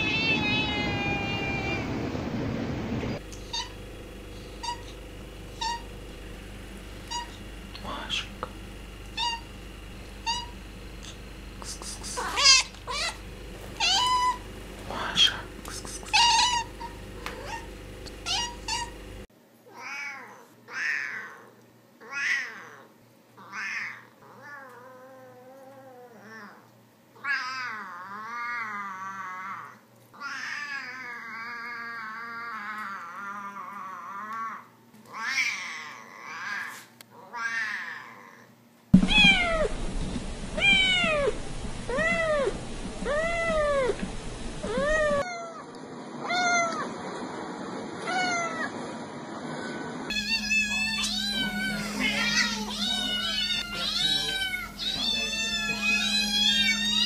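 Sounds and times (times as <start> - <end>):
other cats meowing: 0.0 - 2.1, 50.1 - 57.0
cat meowing: 0.0 - 2.2, 5.6 - 5.8, 10.2 - 10.5, 12.2 - 13.2, 13.8 - 15.4, 16.0 - 17.6, 18.2 - 18.9, 39.1 - 39.7, 40.6 - 41.3, 41.9 - 44.0, 50.1 - 57.0.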